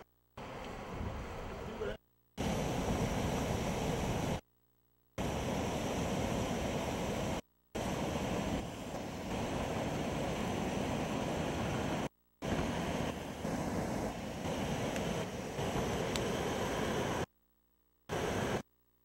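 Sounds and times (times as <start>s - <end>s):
wind buffeting microphone: 0.8s - 1.7s
floodwater rushing: 5.2s - 17.2s.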